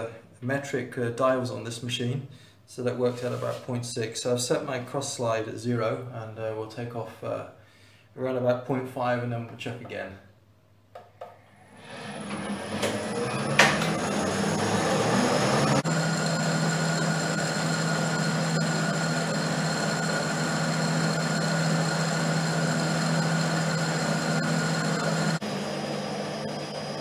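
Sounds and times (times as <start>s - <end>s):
lathe humming with high whine: 11.5s - 27.0s.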